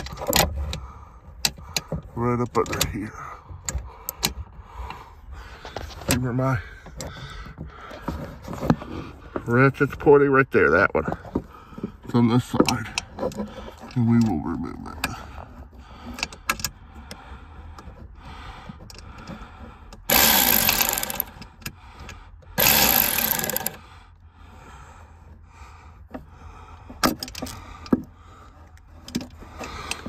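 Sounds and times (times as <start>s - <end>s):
tool handling clicks and knocks: 0.0s - 10.1s, 10.8s - 23.8s, 26.0s - 30.0s
power driver spinning bolt: 20.0s - 21.7s, 22.6s - 23.8s.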